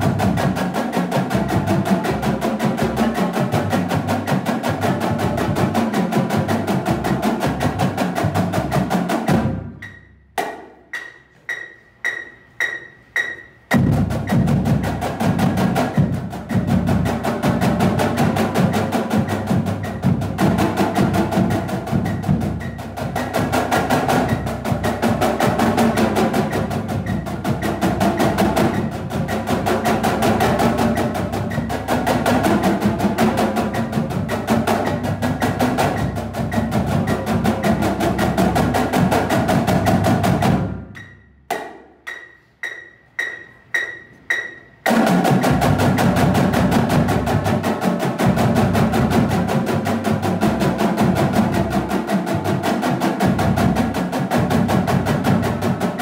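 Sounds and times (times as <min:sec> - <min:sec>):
marching snare drums: 0:00.0 - 0:41.8, 0:43.2 - 0:56.0
pitched metronome clicks: 0:09.8 - 0:14.4, 0:40.9 - 0:44.9.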